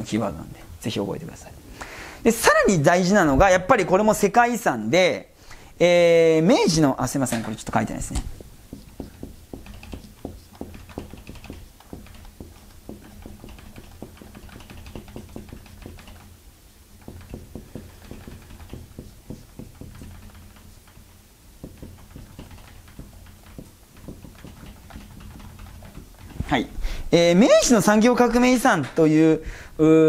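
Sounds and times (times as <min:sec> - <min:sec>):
marker writing on whiteboard: 0:06.7 - 0:26.8.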